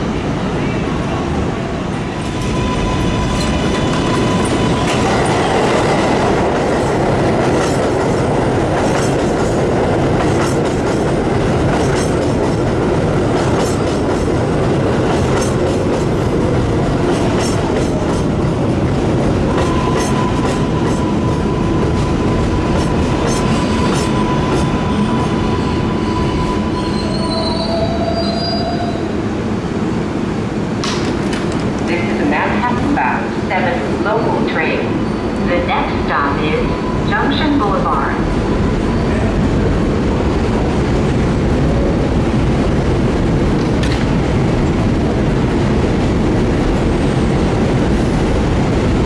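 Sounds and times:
train wheels rumbling on rail: 0.0 - 49.0
rail joint clicks: 3.2 - 12.7, 15.0 - 16.1, 19.5 - 21.2, 22.0 - 24.7, 30.8 - 31.9, 43.6 - 44.3.

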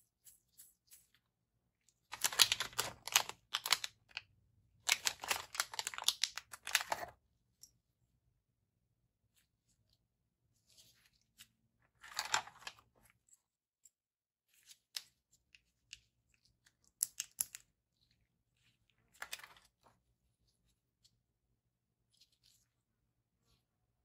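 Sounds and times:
packaging rustling and crinkling: 2.1 - 3.9.

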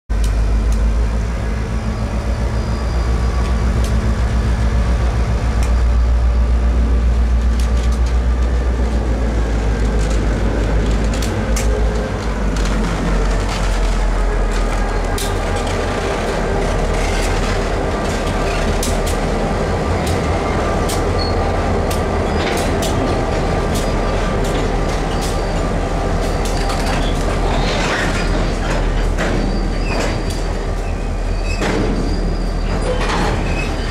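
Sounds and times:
diesel locomotive engines rumbling: 0.1 - 33.9
train wheels clicking over rail joints: 7.1 - 33.9.

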